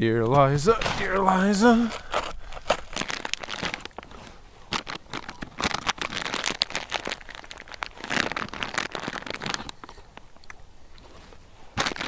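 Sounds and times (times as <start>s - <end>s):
crinkling crackling rustle: 0.0s - 12.0s.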